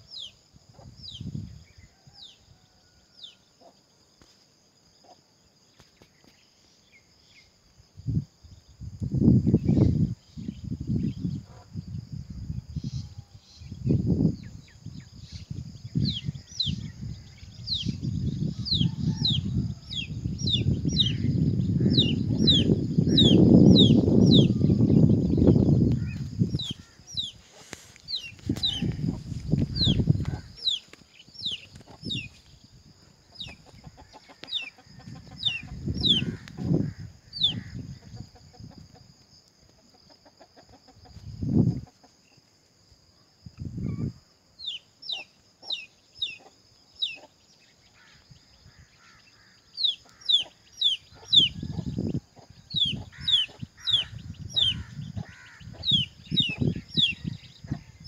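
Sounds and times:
high-pitched insect drone: 0:07.2 - 0:39.2
small birds chirping: 0:12.8 - 0:42.5, 0:43.3 - 0:58.0.

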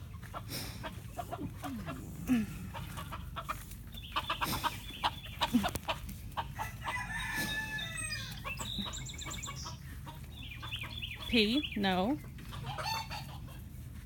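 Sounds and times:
chickens clucking: 0:00.0 - 0:14.0
rooster crowing: 0:06.5 - 0:08.5.

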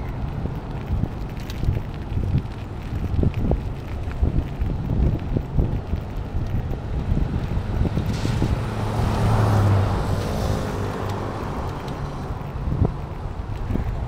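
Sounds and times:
wind buffeting microphone: 0:00.0 - 0:14.0
vehicle passing by: 0:06.1 - 0:13.7.

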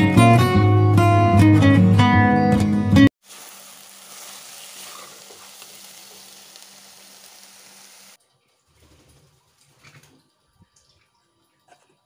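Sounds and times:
carrot mixture sizzling: 0:03.2 - 0:08.2.

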